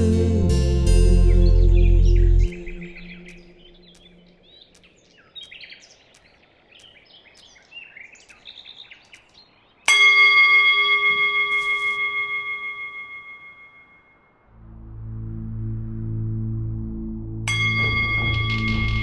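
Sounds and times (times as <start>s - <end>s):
birds chirping: 0.8s - 11.3s
hanging metal bell ringing: 9.9s - 14.2s, 17.5s - 19.0s.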